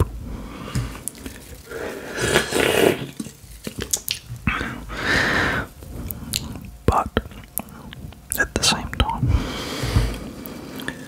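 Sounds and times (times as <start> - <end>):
wet mouth clicks: 2.3 - 4.8, 6.0 - 9.1
person whispering: 6.3 - 9.4.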